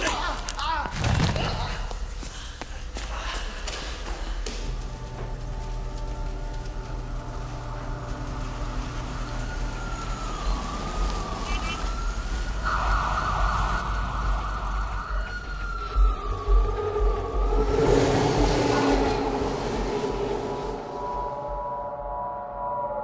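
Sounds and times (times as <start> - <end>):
city traffic rumble: 4.7 - 21.4
emergency siren wailing: 7.2 - 23.0.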